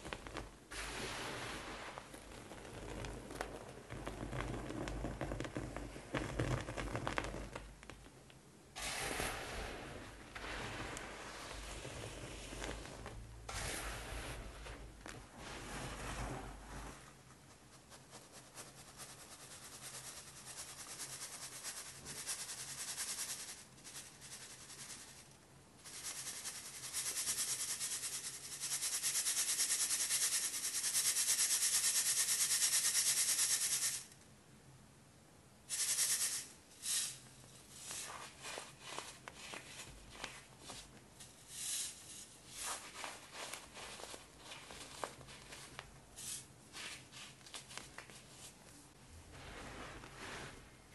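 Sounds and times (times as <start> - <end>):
powder hissing through strainer: 0.0 - 5.3, 8.7 - 17.0, 17.8 - 34.1, 35.7 - 40.2, 41.2 - 45.2, 45.8 - 47.4
hand rustling powder: 0.0 - 7.7, 8.8 - 25.2, 35.7 - 50.9.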